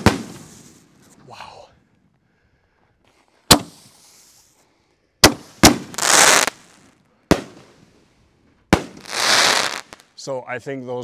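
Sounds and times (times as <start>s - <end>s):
firework bangs: 0.0s - 0.8s, 3.5s - 3.9s, 5.2s - 7.8s, 8.7s - 10.0s
firework hissing crackle: 0.0s - 1.2s, 3.6s - 4.6s, 5.3s - 8.0s, 8.8s - 10.2s.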